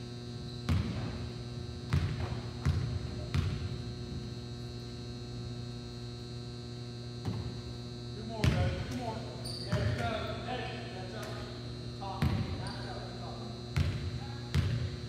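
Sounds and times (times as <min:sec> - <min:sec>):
electrical hum: 0:00.0 - 0:15.0
basketball bouncing on hardwood floor: 0:00.7 - 0:01.2, 0:01.9 - 0:03.7, 0:13.8 - 0:14.9.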